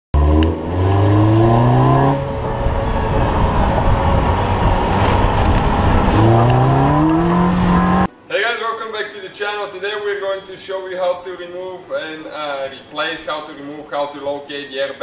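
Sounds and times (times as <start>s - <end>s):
car engine accelerating: 0.2s - 8.1s
wind and tyre noise: 0.2s - 8.1s.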